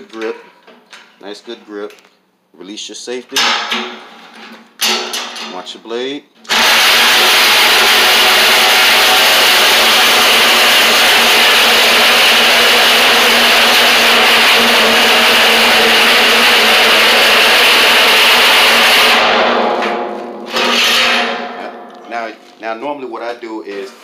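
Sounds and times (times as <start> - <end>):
reciprocating saw cutting metal: 6.5 - 22.4.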